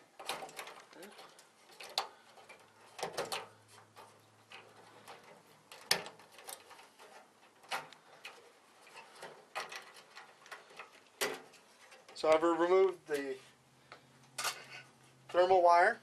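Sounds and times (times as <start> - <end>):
pliers pulling wire connectors: 0.0 - 12.4.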